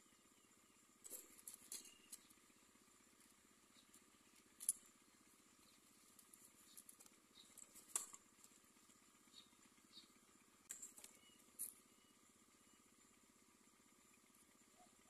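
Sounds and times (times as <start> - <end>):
twigs clicking and rustling: 6.0 - 8.6.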